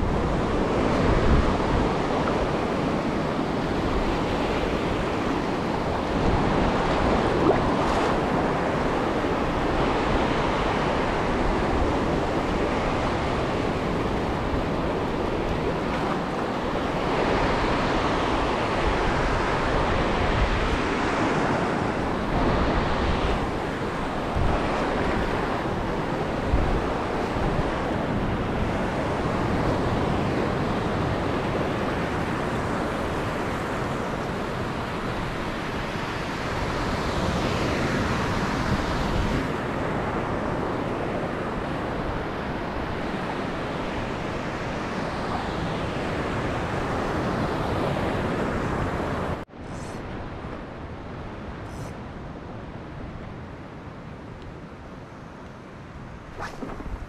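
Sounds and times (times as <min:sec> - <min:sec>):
waves breaking: 0:00.0 - 0:32.6, 0:55.9 - 0:57.0
wind buffeting microphone: 0:55.8 - 0:57.0.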